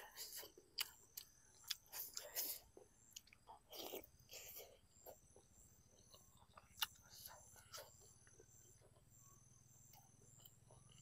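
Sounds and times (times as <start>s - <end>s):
wet chewing mouth sounds: 0.0s - 9.1s.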